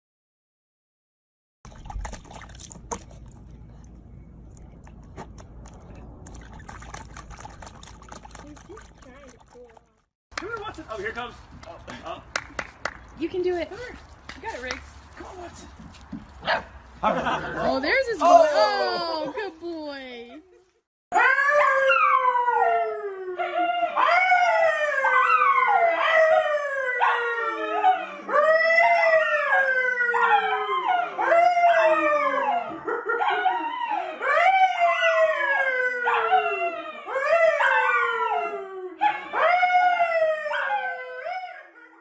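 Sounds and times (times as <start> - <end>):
dog howling: 21.1 - 42.0.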